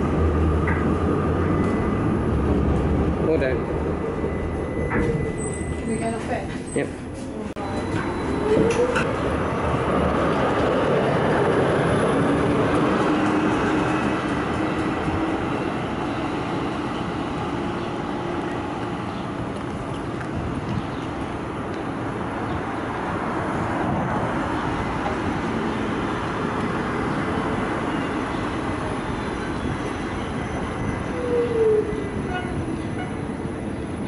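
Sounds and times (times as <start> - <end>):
street noise: 0.0 - 34.0
trams running on tracks: 0.0 - 34.0.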